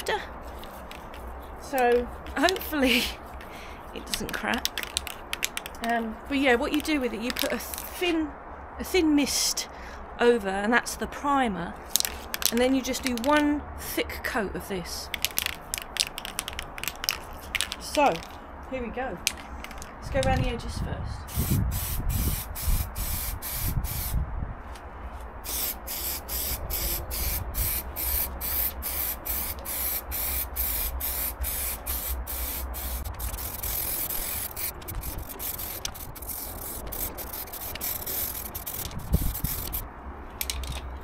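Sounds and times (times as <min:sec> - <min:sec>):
spray paint can hissing: 0:00.5 - 0:05.9, 0:06.7 - 0:08.0, 0:11.9 - 0:13.3, 0:15.1 - 0:18.3, 0:21.3 - 0:24.2, 0:25.4 - 0:39.8.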